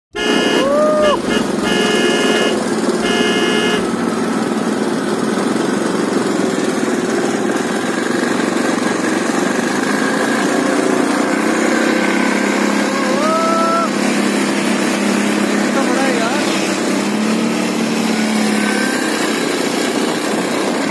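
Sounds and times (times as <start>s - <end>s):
horn sounding: 0.1s - 4.1s
atv engine running: 0.1s - 20.9s
short rising call: 0.3s - 3.9s.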